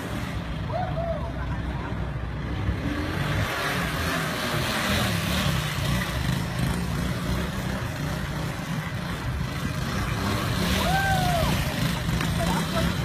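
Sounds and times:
small motorbike engine running: 0:04.2 - 0:13.0.

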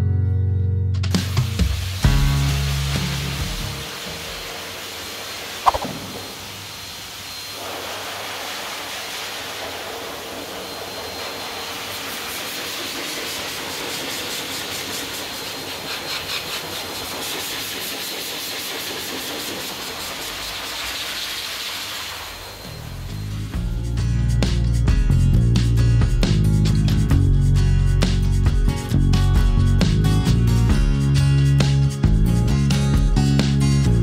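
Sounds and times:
dog dryer blowing air: 0:01.7 - 0:23.6
faint steady whine: 0:03.9 - 0:12.8, 0:19.8 - 0:23.8.

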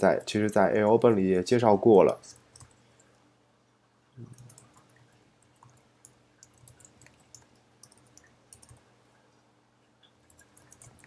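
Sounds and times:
computer keyboard typing: 0:00.0 - 0:02.8, 0:04.2 - 0:08.8, 0:10.2 - 0:11.0
faint steady hum: 0:00.0 - 0:11.0.

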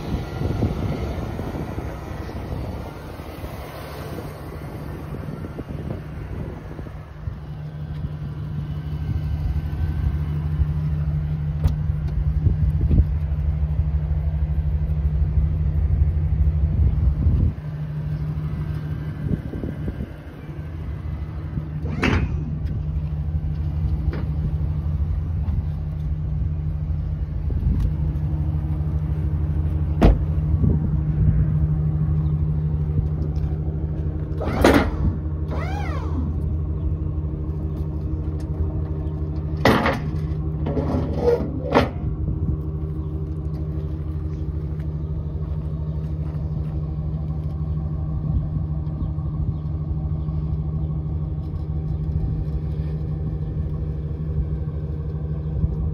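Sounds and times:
truck engine idling: 0:00.0 - 0:55.9
knocks and clunks: 0:29.9 - 0:30.4, 0:38.4 - 0:42.1.

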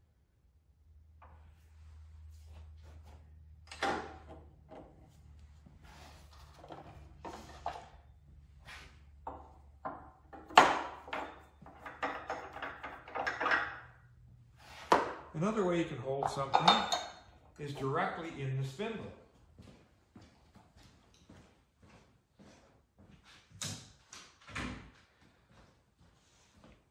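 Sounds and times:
lathe parts and tools knocking: 0:09.2 - 0:14.0, 0:16.2 - 0:17.8.

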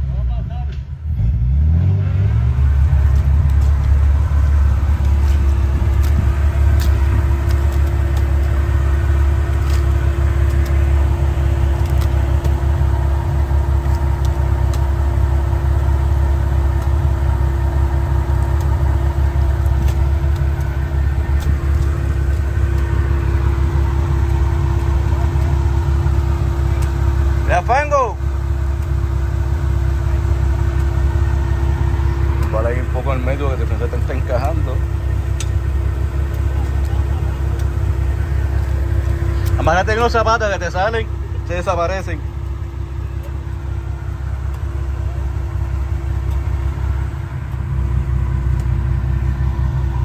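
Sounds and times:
car engine running: 0:00.0 - 0:50.0
steady hum: 0:02.5 - 0:50.0
light ticks: 0:48.5 - 0:48.8.

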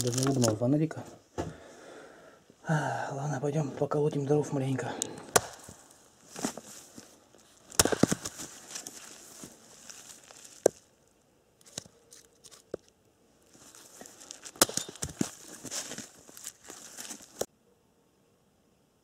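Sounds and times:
wood being handled: 0:00.0 - 0:00.7, 0:05.2 - 0:10.9, 0:11.6 - 0:17.5
axe chopping firewood: 0:05.2 - 0:05.8, 0:07.7 - 0:08.5, 0:14.4 - 0:15.4.

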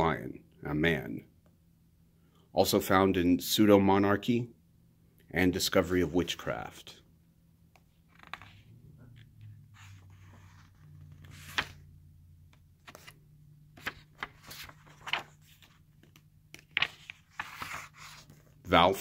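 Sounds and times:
book pages turning: 0:07.8 - 0:11.9, 0:12.5 - 0:18.6.

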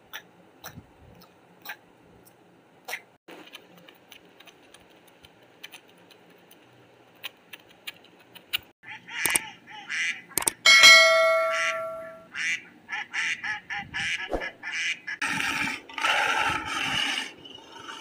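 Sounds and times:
bright ringing chime: 0:10.7 - 0:12.2.

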